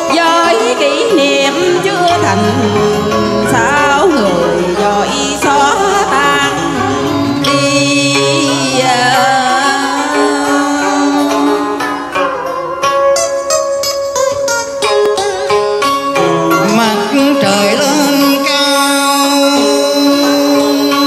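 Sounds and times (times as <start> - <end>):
woman singing opera with vibrato: 0.0 - 12.2
amplified backing music: 0.0 - 21.0.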